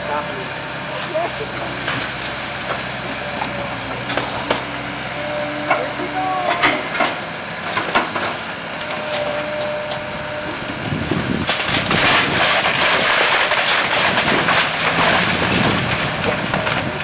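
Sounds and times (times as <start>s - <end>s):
excavator diesel engine running: 0.0s - 17.0s
splintering timber crashing: 11.4s - 17.0s.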